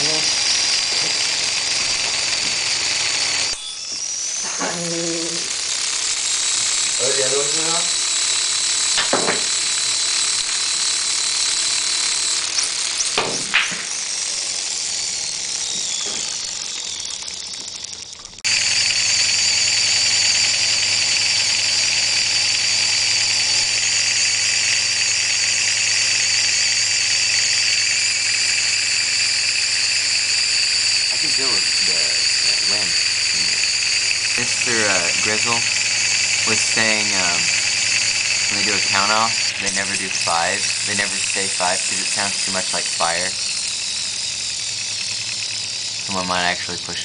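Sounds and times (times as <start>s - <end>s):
motor driving gears whining: 0.0s - 47.0s
knocks: 9.0s - 9.5s.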